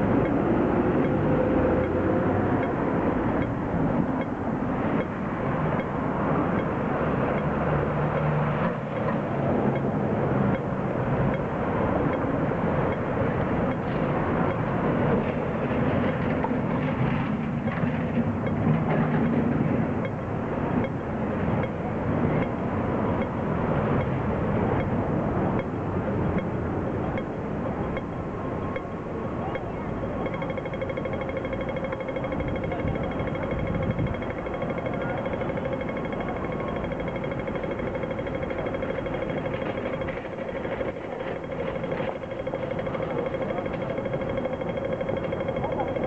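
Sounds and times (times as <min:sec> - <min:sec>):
crossing signal ticking: 0:00.0 - 0:46.0
passing traffic rumble: 0:00.0 - 0:46.0
street noise: 0:00.0 - 0:46.0.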